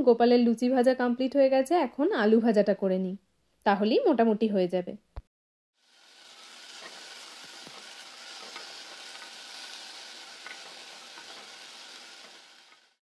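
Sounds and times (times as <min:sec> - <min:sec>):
potatoes sizzling in oil: 0:05.8 - 0:13.0.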